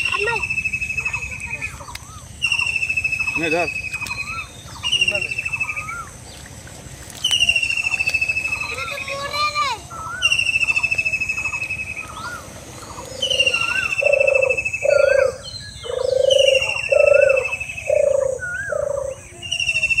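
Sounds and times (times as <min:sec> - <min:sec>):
lower animal calls: 0:07.3 - 0:20.0.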